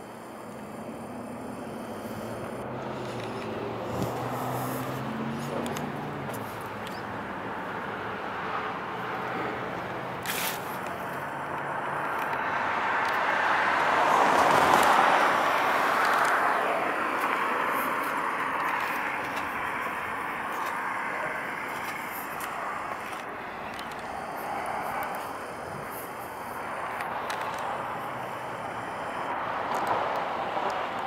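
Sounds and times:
car driving past: 2.3 - 10.4, 11.2 - 22.2.

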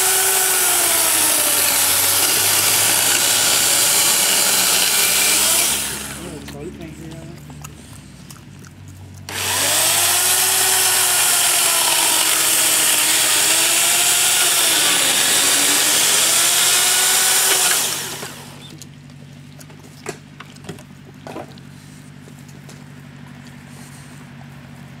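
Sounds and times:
buzzsaw cutting wood: 0.0 - 8.1, 9.2 - 18.8.

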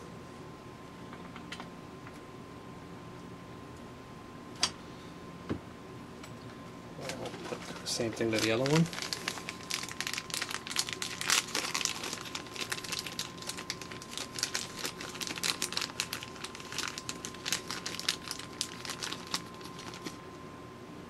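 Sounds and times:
plastic packet crinkling: 7.0 - 20.2.

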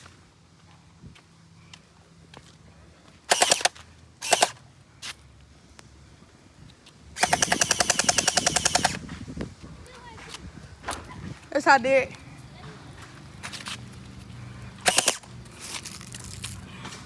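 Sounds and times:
gel blaster firing full auto: 3.3 - 4.6, 7.2 - 9.0, 14.8 - 15.2.

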